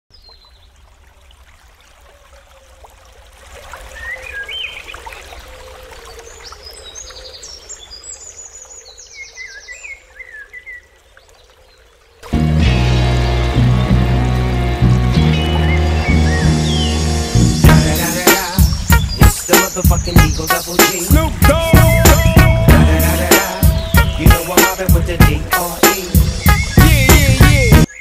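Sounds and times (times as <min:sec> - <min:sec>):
forest birds singing: 0:03.9 - 0:12.2, 0:13.1 - 0:28.0
loud music: 0:12.3 - 0:27.9.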